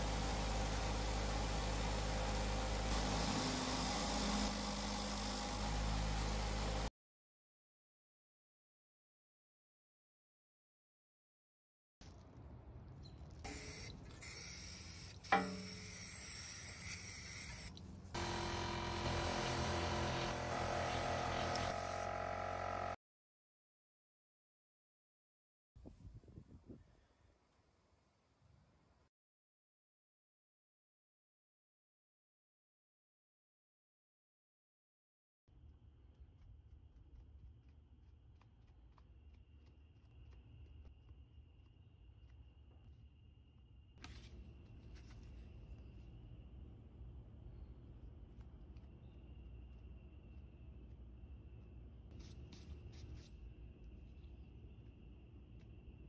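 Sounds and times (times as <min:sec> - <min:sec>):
spray paint can hissing: 0:13.5 - 0:17.8, 0:20.3 - 0:21.9.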